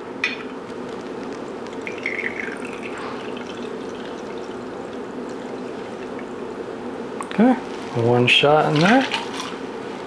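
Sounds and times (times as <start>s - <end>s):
liquid trickling into metal cup: 1.7s - 6.3s.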